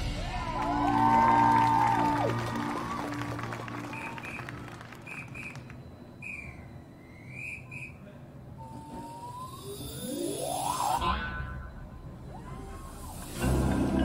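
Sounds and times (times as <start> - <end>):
whistle tone dipping and climbing: 3.8 - 14.0
tones sliding upward: 8.6 - 14.0.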